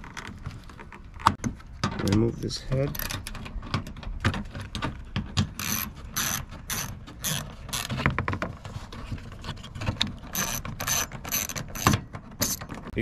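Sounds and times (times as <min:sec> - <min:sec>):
hand ratchet clicking: 0:05.5 - 0:07.9, 0:10.3 - 0:12.8.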